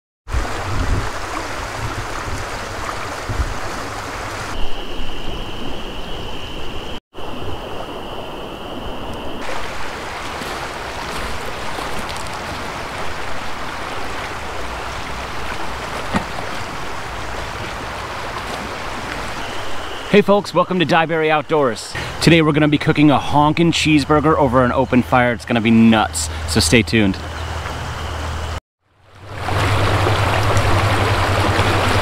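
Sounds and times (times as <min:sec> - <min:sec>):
shallow river flowing over stones: 0:00.3 - 0:04.6, 0:09.4 - 0:20.0, 0:29.0 - 0:32.0
steady high whistle: 0:19.1 - 0:21.8.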